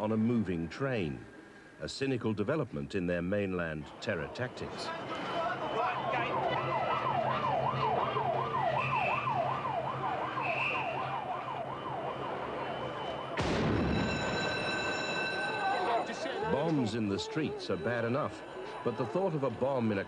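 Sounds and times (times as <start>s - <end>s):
emergency siren wailing: 4.6s - 20.0s.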